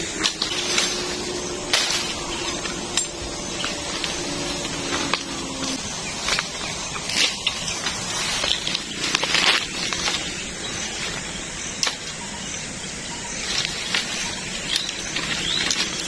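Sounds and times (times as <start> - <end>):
bamboo stems knocking: 0.0 - 11.2, 11.8 - 12.2
bamboo leaves rustling: 0.0 - 16.0
bamboo cracking: 0.2 - 11.2, 11.8 - 12.2.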